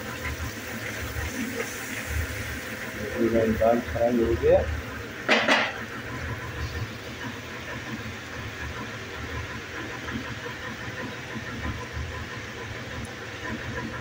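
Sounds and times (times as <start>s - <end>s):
gas stove low rumble: 0.0s - 14.0s.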